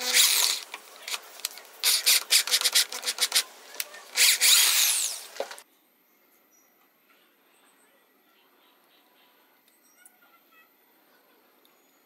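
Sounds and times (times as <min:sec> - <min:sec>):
power drill grinding through metal: 0:00.0 - 0:00.6, 0:04.1 - 0:05.6.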